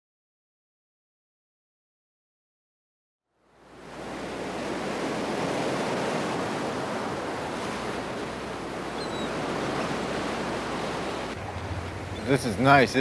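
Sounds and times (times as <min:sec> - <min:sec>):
ocean surf washing: 0:03.4 - 0:13.0.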